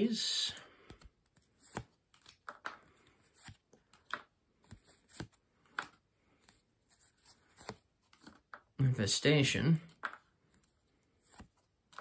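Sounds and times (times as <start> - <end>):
playing cards swishing: 0.8 - 8.4.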